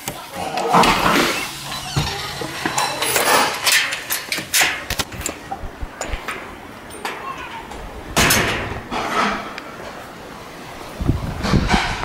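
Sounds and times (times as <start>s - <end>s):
metal screen door clinks and knocks: 1.0s - 5.4s, 6.0s - 9.5s.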